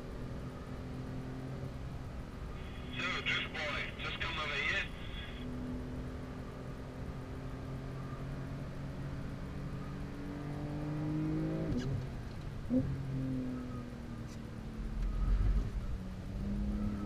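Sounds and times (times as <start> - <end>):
car engine accelerating: 5.6 - 14.0, 14.8 - 17.0.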